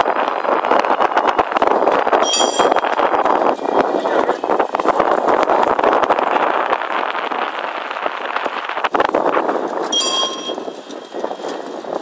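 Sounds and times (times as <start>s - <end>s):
wind and road noise: 0.0s - 12.0s
bicycle bell ringing: 2.2s - 2.9s, 9.9s - 10.8s
bicycle rattle: 2.2s - 3.7s, 9.6s - 12.0s.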